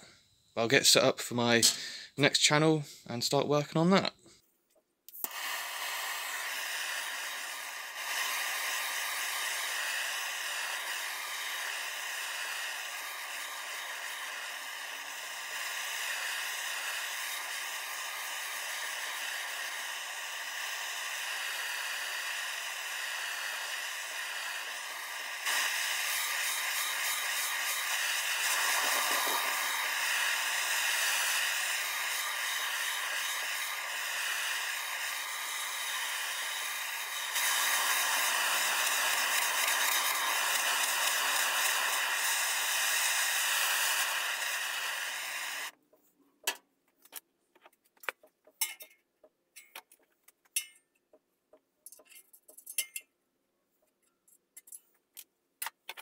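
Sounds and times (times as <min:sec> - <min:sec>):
gas torch hissing: 0:05.1 - 0:45.8
metallic clicks and taps: 0:46.4 - 0:53.1, 0:53.8 - 0:56.0.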